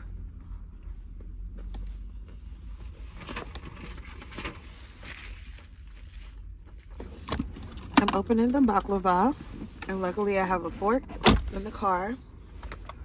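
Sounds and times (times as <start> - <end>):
food packaging rustling: 3.2 - 7.2
car cabin rumble: 5.7 - 13.0.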